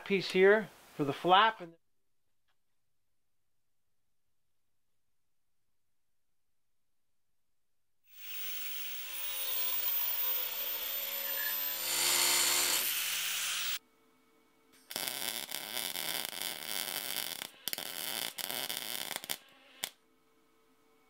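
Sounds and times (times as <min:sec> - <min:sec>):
angle grinder cutting steel: 0:08.1 - 0:13.8
welding arc crackling: 0:08.1 - 0:13.8, 0:14.9 - 0:20.0.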